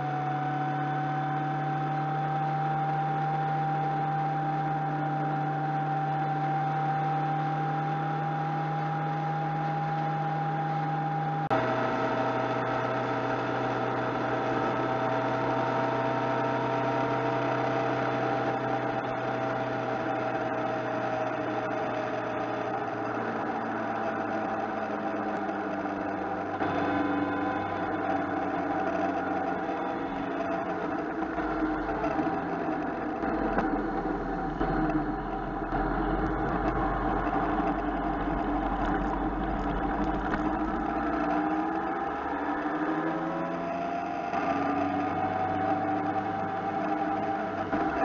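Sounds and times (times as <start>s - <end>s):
motorcycle engine whine: 0.0s - 48.0s
wind and road noise: 0.0s - 48.0s.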